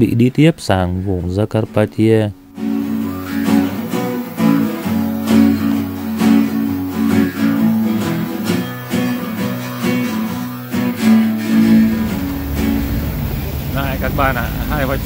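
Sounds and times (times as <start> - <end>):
acoustic guitar strumming: 2.3 - 15.0
harmonica chords: 2.4 - 13.3.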